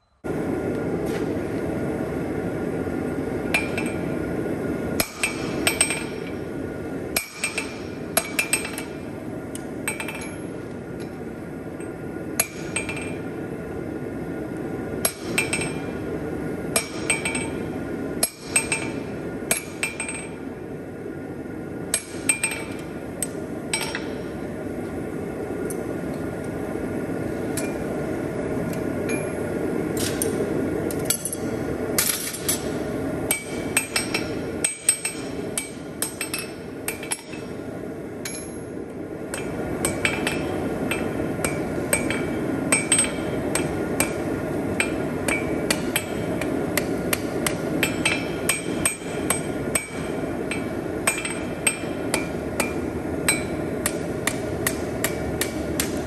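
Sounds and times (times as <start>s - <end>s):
hammer striking steel on anvil: 3.5s - 4.1s, 5.0s - 6.4s, 7.1s - 10.4s, 12.4s - 13.2s, 15.0s - 16.0s, 16.7s - 17.6s, 18.2s - 20.4s, 21.9s - 24.4s, 31.0s - 37.6s, 39.3s - 56.0s.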